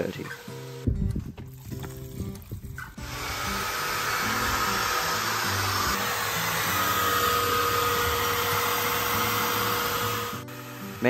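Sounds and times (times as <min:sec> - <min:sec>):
background music with bass: 0:00.0 - 0:11.0
carpet cleaner suction motor droning: 0:03.0 - 0:11.0.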